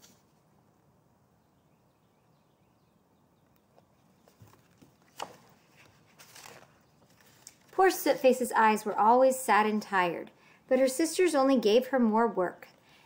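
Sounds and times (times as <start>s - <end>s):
book pages rustling: 4.0s - 8.0s.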